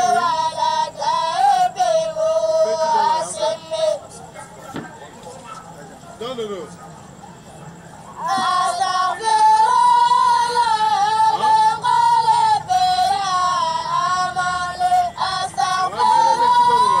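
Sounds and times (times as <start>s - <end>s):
boy singing in a high voice: 0.0s - 4.0s, 8.2s - 17.0s.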